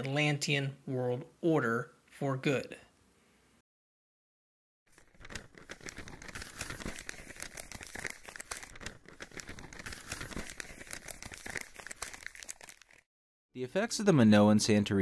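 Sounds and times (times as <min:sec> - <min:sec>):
paper crinkling and rustling: 0:04.9 - 0:13.1.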